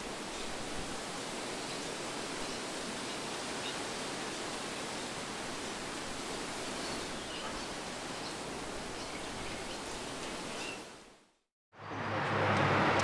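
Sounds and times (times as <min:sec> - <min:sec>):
outdoor ambient hiss: 0:00.0 - 0:13.0.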